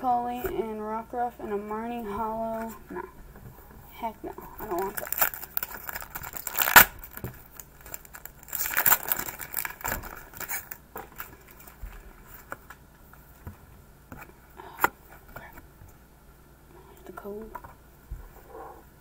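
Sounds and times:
foil wrapper crinkling and tearing: 0:04.6 - 0:11.8
cards rustling: 0:04.6 - 0:12.8.

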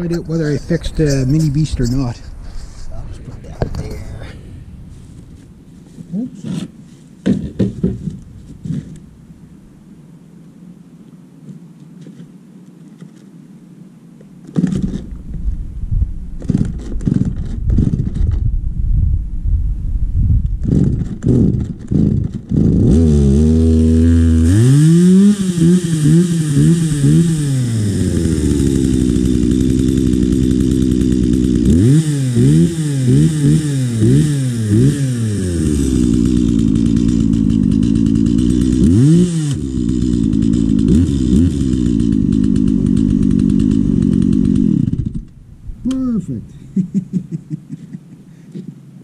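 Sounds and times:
chainsaw pull-starting: 0:14.5 - 0:15.1, 0:16.4 - 0:18.3, 0:20.6 - 0:45.4
chainsaw idling and revving: 0:20.6 - 0:45.4.

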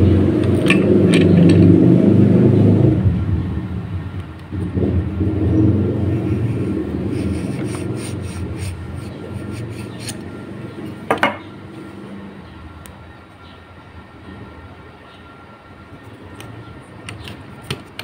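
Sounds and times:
passing vehicle rumble: 0:00.0 - 0:13.6.

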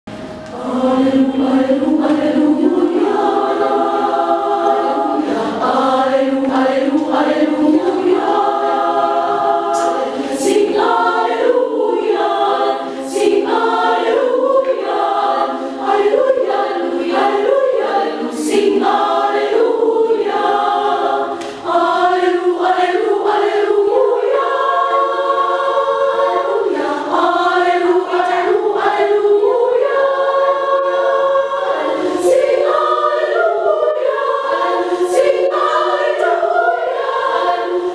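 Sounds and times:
women's choir singing a hymn: 0:00.2 - 0:37.9.

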